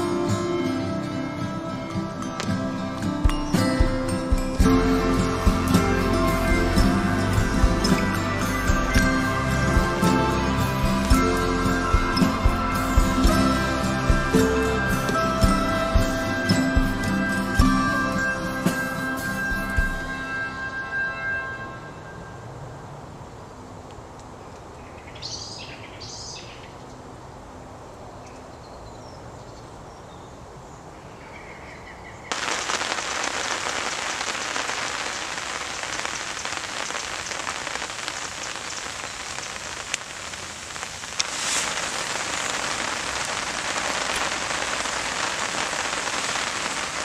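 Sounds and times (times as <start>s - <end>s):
rain hissing: 0.0s - 21.5s, 32.3s - 47.0s.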